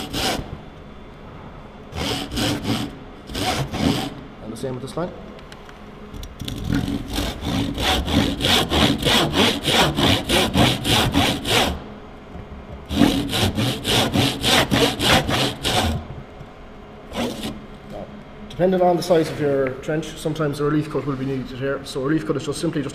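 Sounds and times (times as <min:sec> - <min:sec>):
hand saw cutting wood: 0:00.0 - 0:00.5, 0:01.9 - 0:04.2, 0:06.4 - 0:11.8, 0:12.9 - 0:16.1, 0:17.1 - 0:17.6.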